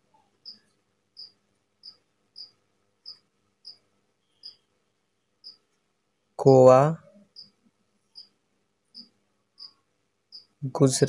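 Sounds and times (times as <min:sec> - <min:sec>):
cricket chirping: 0:00.4 - 0:04.7, 0:05.4 - 0:05.6, 0:07.2 - 0:10.6.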